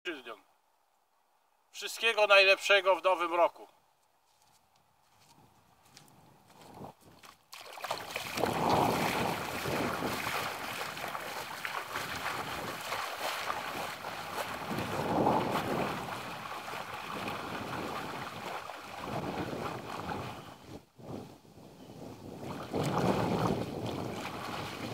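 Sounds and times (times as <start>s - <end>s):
legs wading through water: 7.0s - 20.8s, 22.3s - 24.9s.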